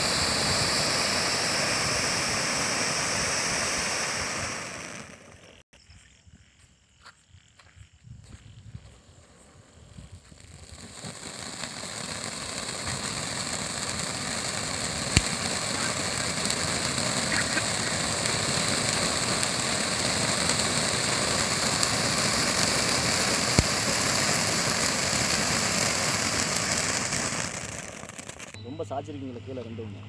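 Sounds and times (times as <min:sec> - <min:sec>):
firework hissing: 0:00.0 - 0:05.6, 0:08.8 - 0:29.2
sharp cracks: 0:10.4 - 0:28.6.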